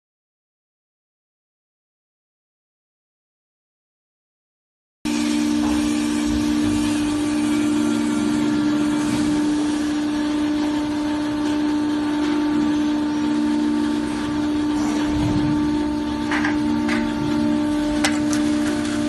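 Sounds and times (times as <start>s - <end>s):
machine motor humming: 5.1s - 19.0s.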